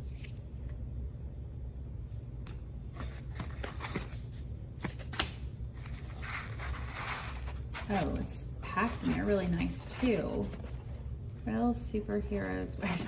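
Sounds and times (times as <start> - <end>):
cardboard box rustling and scraping: 5.8 - 11.0.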